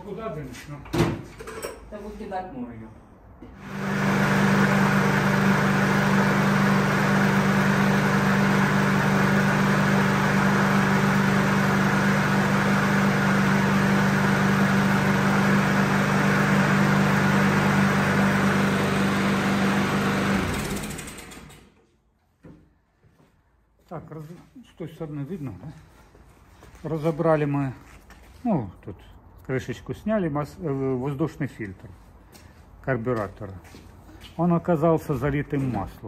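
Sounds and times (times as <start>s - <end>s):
lawn mower engine running: 3.6s - 21.7s.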